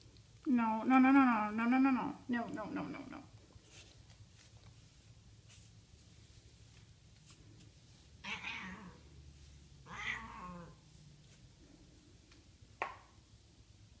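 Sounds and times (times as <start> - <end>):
cat meowing: 8.2 - 9.0, 9.8 - 10.8.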